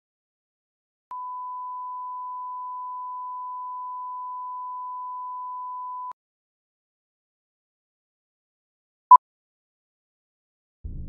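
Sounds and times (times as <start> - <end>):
steady test tone beep: 1.1 - 6.2.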